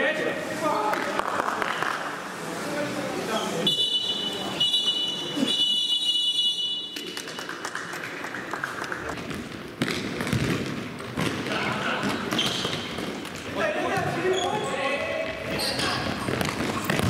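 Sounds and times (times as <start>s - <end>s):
echoing sports hall noise: 0.0s - 17.0s
referee's whistle blast: 3.6s - 7.0s
ball thudding on hard floor: 9.2s - 13.1s, 16.3s - 17.0s.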